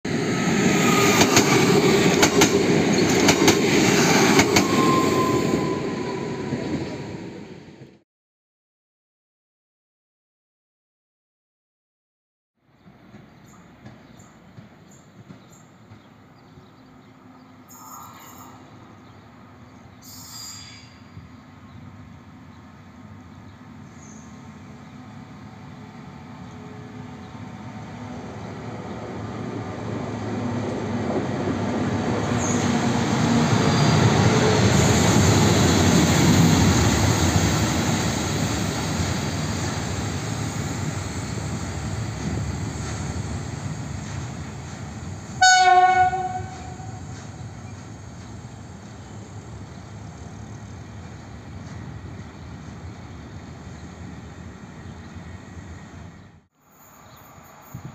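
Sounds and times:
short horn blast: 0:45.4 - 0:47.0.

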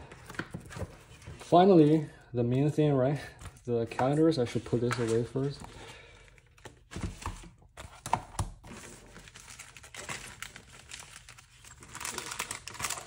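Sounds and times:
paper and packaging crinkling: 0:03.4 - 0:13.0.

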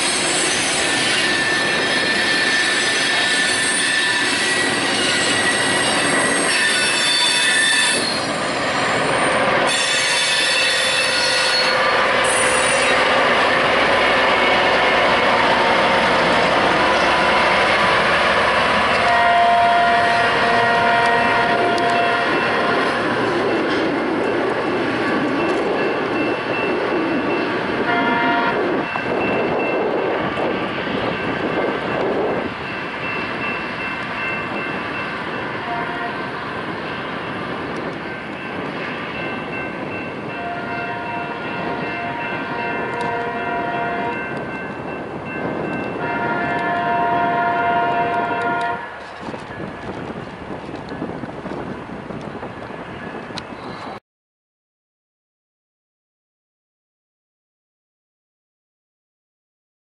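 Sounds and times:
steel wheels squealing: 0:00.0 - 0:13.1.

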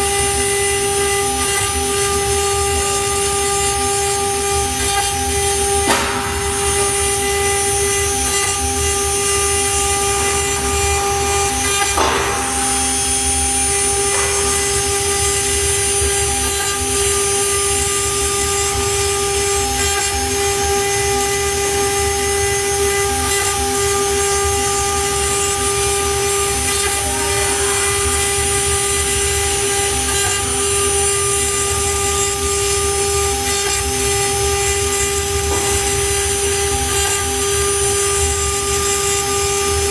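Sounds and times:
router bit cutting wood: 0:00.0 - 0:39.9
wood router spindle whining: 0:00.0 - 0:39.9.

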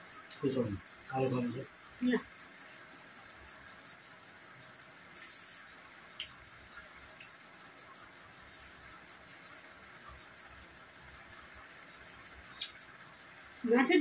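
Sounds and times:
room hiss: 0:00.0 - 0:14.0
soft clicks of eating by hand: 0:06.2 - 0:07.4, 0:12.5 - 0:12.8.

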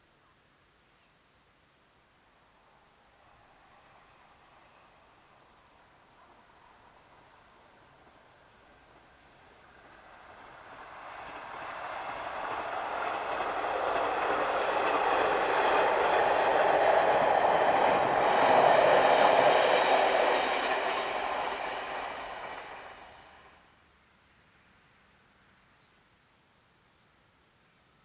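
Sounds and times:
diesel railcar running past: 0:02.5 - 0:23.6.

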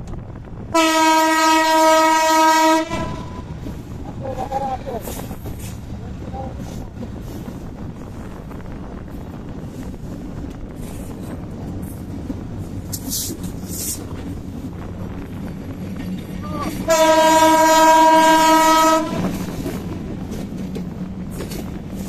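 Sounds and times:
train rumbling: 0:00.0 - 0:22.0
locomotive horn blast: 0:00.7 - 0:03.5, 0:16.8 - 0:19.3.

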